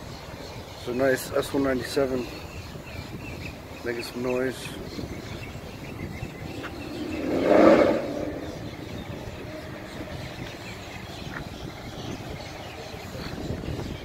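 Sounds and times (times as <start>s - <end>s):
car engine driving past: 6.1s - 10.6s.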